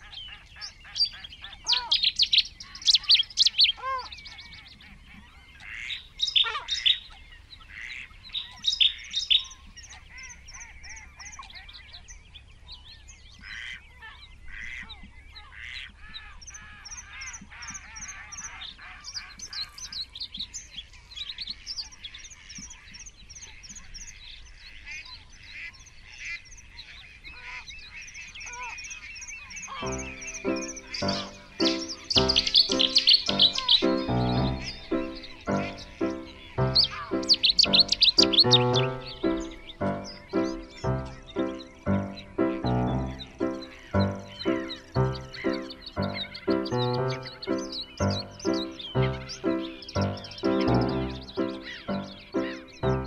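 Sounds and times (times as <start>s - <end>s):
geese honking: 0.0s - 11.5s, 29.6s - 53.0s
songbirds chirping: 0.0s - 53.0s.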